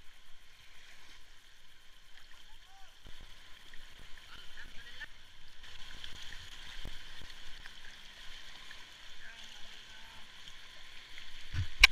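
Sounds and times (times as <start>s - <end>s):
river water rushing and gurgling: 0.0s - 11.9s.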